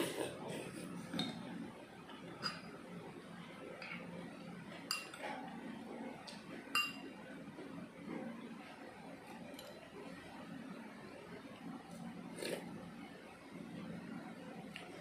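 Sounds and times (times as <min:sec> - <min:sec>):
metal spoon clinking bowls: 0:02.4 - 0:02.8, 0:04.9 - 0:05.2, 0:06.7 - 0:07.1.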